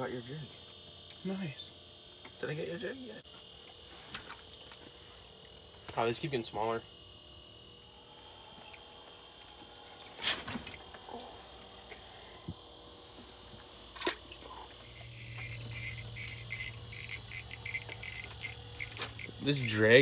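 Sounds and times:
low steady hum: 0.0 - 20.0
fishing reel drag clicking: 14.8 - 20.0.

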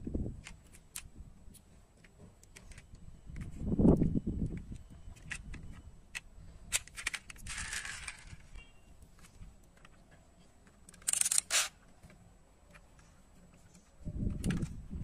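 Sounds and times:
metal toy cars clinking: 6.7 - 8.8, 10.8 - 11.8
rustling scrape: 7.4 - 8.6.

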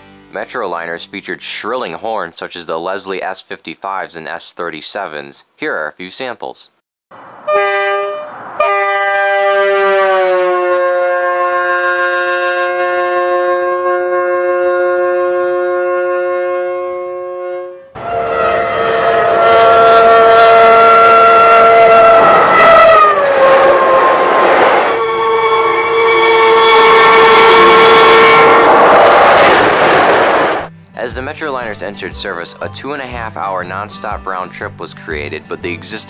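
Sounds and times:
train noise: 7.2 - 12.7, 18.0 - 30.7
shrill train air horn: 7.4 - 29.6.

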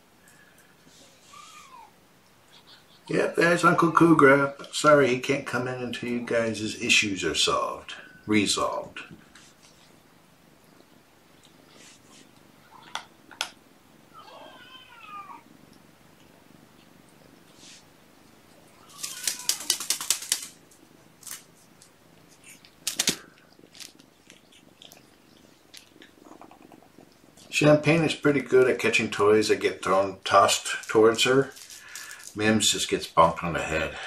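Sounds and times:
kitten meowing: 14.2 - 15.4
kittens playing with toys: 18.8 - 27.5, 30.4 - 32.5.

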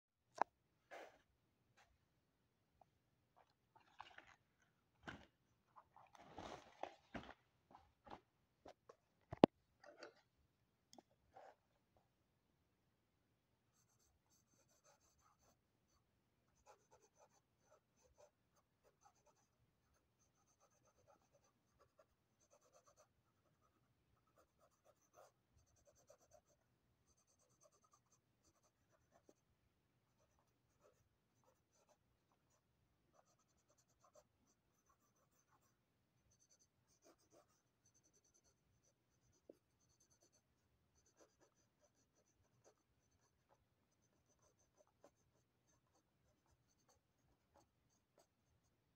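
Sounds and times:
pencil scratching on paper: 13.7 - 29.5, 30.1 - 48.9.

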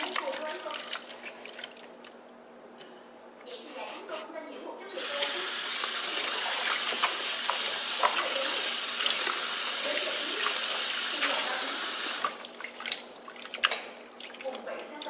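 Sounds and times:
small water splashes: 0.0 - 2.2, 5.2 - 15.0
tap running into bowl: 5.0 - 12.3.

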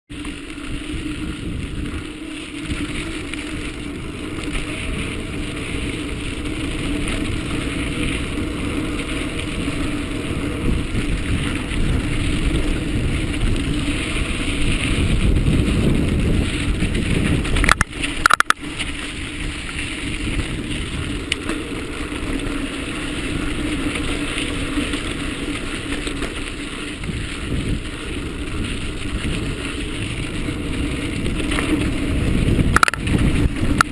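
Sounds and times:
bike rattling: 0.1 - 33.9
tyres rolling on sandy dirt: 0.1 - 33.9
wind rushing over microphone: 0.1 - 33.9.

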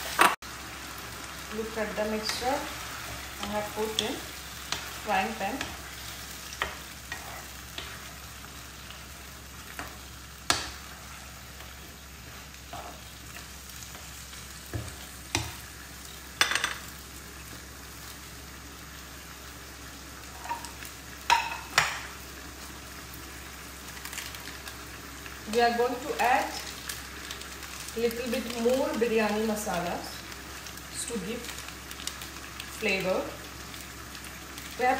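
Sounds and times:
meat sizzling in frying pan: 0.0 - 34.9
spatula scraping and tapping pan: 6.5 - 8.1, 9.7 - 11.0, 20.4 - 22.1.

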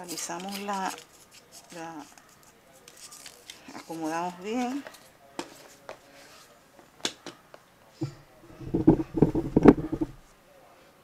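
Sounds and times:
hand rubbing on marble: 8.0 - 10.3.

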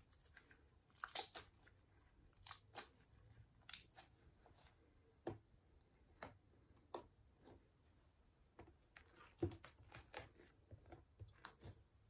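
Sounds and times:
slime squishing and popping: 0.9 - 1.6.

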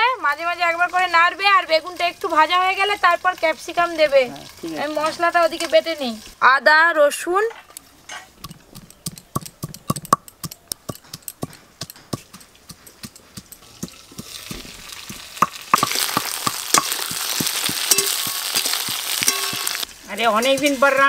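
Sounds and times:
vegetables sizzling in oil: 0.0 - 9.9, 11.0 - 21.0
metal spatula scraping wok: 7.6 - 9.1, 15.8 - 21.0
stone pestle knocking on slab: 8.4 - 14.7, 15.4 - 19.8.

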